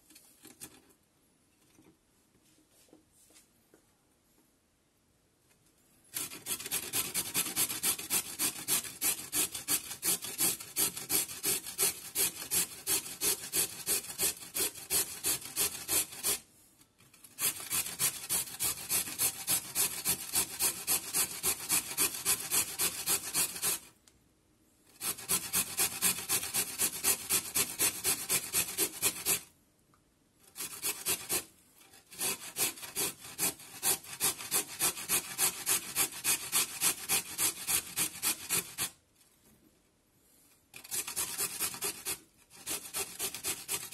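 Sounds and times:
carrot grated on box grater: 6.1s - 16.4s, 17.0s - 23.9s, 24.9s - 29.5s, 30.4s - 39.0s, 40.7s - 43.9s.

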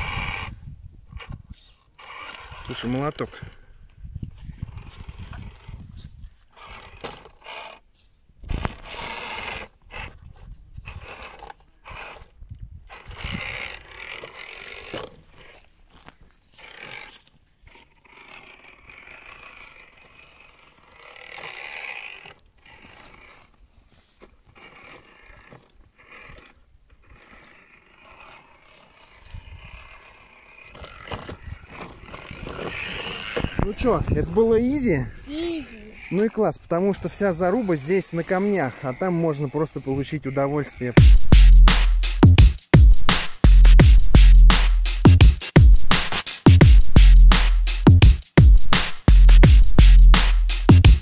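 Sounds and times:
electric motor whirring: 0.0s - 51.0s
tyres scraping on wood: 1.1s - 3.7s, 4.4s - 41.9s.

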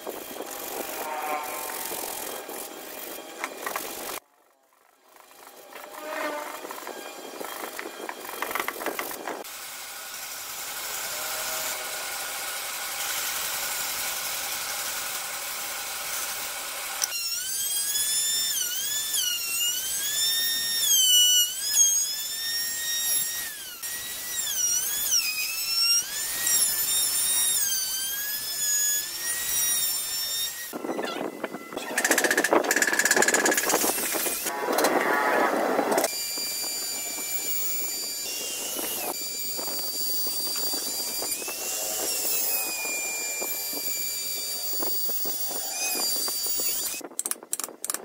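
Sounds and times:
electric router whining: 0.0s - 47.0s
wooden parts clacking and scraping: 0.1s - 9.4s, 30.8s - 36.1s.

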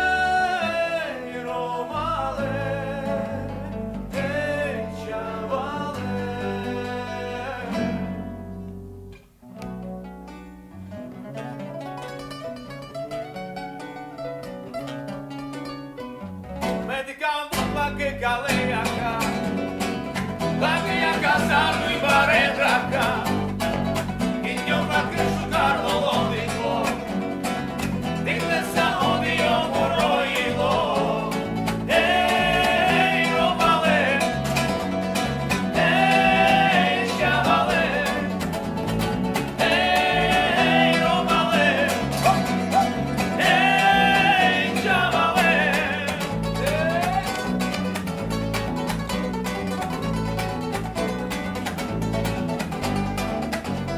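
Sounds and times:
men singing: 0.0s - 8.0s, 16.9s - 19.6s, 20.4s - 23.6s, 24.2s - 27.4s, 28.0s - 47.6s
electric bass: 0.0s - 13.0s, 17.6s - 53.9s
acoustic guitars strummed: 0.0s - 53.9s.

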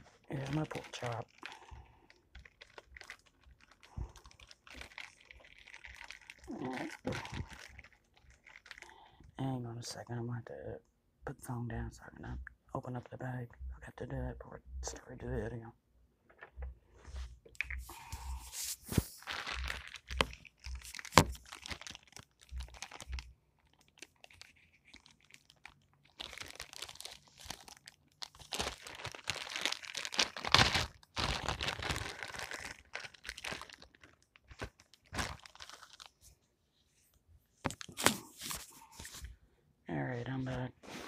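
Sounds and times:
plastic bag crinkling and tearing: 0.0s - 9.0s, 17.7s - 36.3s, 37.7s - 39.2s.

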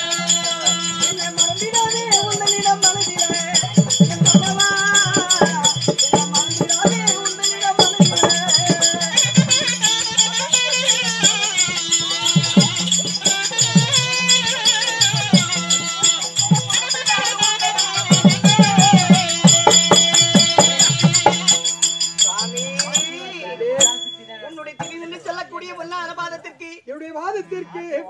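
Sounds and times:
fast shaking rhythm: 0.0s - 25.4s.

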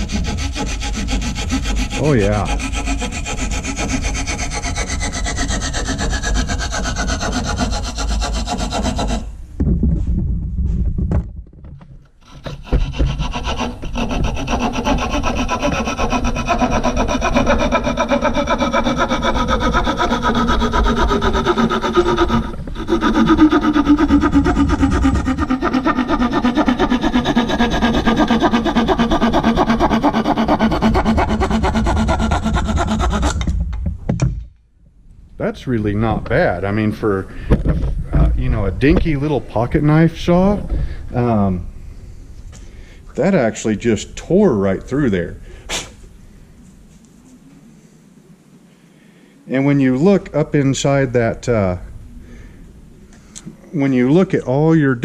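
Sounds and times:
saw blade cutting wood: 0.0s - 9.4s, 12.2s - 33.6s.

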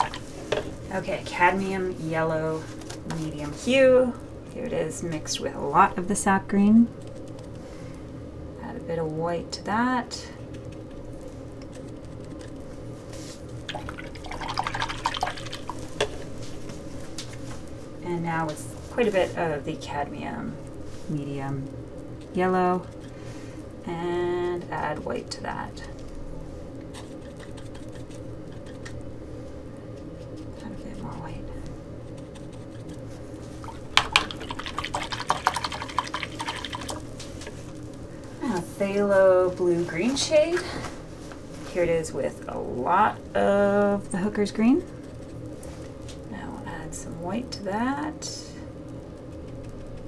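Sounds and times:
paintbrush rinsed in water jar: 0.0s - 0.7s, 13.6s - 16.3s, 32.2s - 37.7s
steady low hum: 0.0s - 50.0s
paintbrush sticky clicks: 26.9s - 29.0s, 32.1s - 37.1s, 49.3s - 50.0s.

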